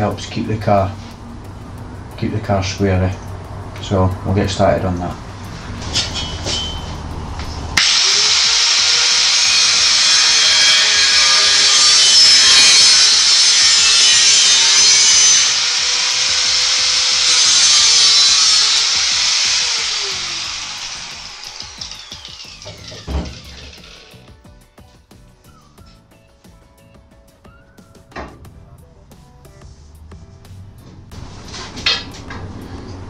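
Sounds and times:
angle grinder cutting steel: 0:05.6 - 0:07.1, 0:07.7 - 0:24.3.

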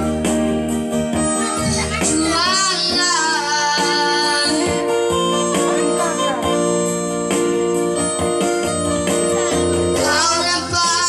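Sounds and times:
electronic keyboard accompaniment: 0:00.0 - 0:11.0
boys singing duet: 0:01.2 - 0:06.2, 0:09.4 - 0:11.0.

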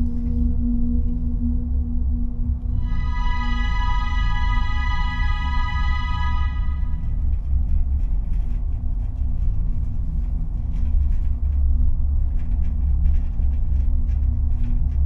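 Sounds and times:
faint hum: 0:02.5 - 0:07.5
loud low rumble: 0:02.6 - 0:07.5.

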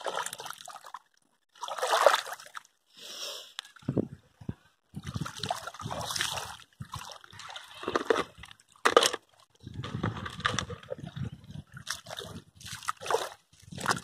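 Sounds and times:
footsteps splashing through muddy water: 0:10.0 - 0:14.0.

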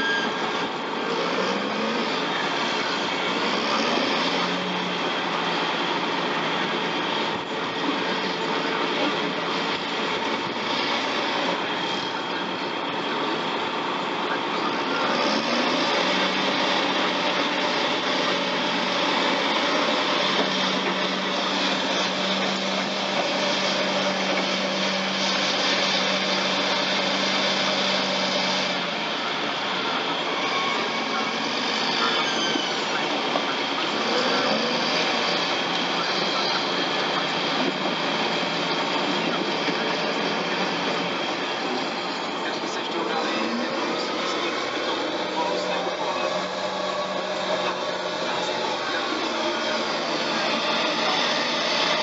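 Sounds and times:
bulldozer diesel engine: 0:00.0 - 0:52.0.

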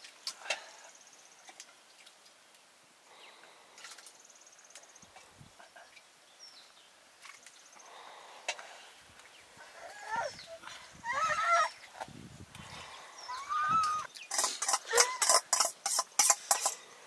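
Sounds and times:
bird chirp: 0:12.6 - 0:14.4.

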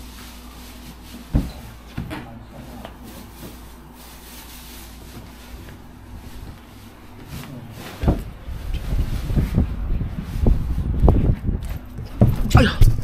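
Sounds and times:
steady low hum: 0:00.0 - 0:13.0
irregular dull thumps: 0:10.9 - 0:13.0.

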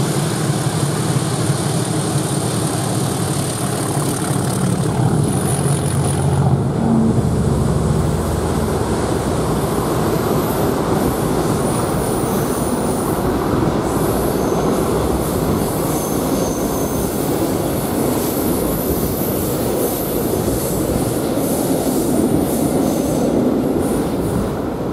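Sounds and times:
freight train wheels rumbling on rail: 0:00.0 - 0:24.9
high-pitched wheel squeal: 0:13.9 - 0:17.5.

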